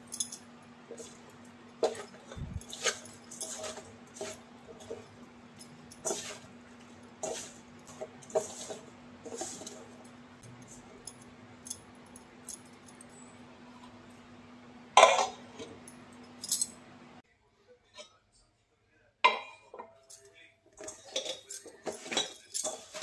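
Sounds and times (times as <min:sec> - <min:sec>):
steady hum: 0:00.0 - 0:17.2
hands tossing food in a steel bowl: 0:00.9 - 0:11.0, 0:20.8 - 0:23.0.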